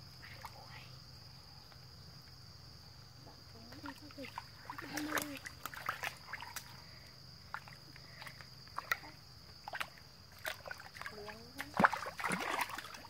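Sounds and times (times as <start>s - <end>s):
high insect drone: 0.0s - 13.0s
muddy water sloshing: 3.5s - 13.0s.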